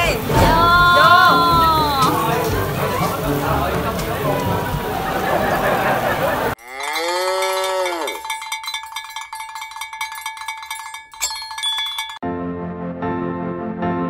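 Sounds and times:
sharp metallic hit: 0:00.0 - 0:02.6
cow mooing: 0:06.6 - 0:08.3
cowbell ringing: 0:06.6 - 0:12.2.

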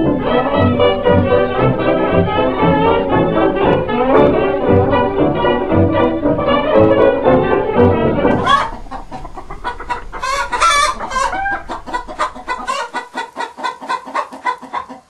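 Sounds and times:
hens clucking: 0:00.0 - 0:15.0
hen squawks: 0:08.3 - 0:15.0.

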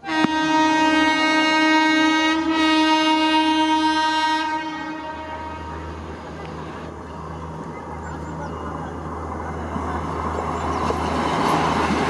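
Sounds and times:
locomotive horn blast: 0:00.0 - 0:06.3
train rumbling: 0:00.0 - 0:12.0.

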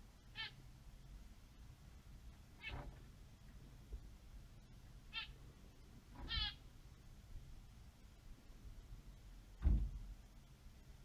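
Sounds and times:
high-pitched animal calls: 0:00.3 - 0:00.6, 0:05.1 - 0:05.4, 0:06.3 - 0:06.6.

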